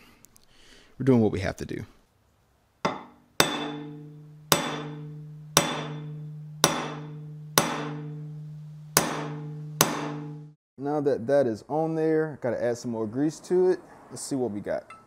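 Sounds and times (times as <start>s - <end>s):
sharp metal strikes ringing: 2.9s - 10.6s.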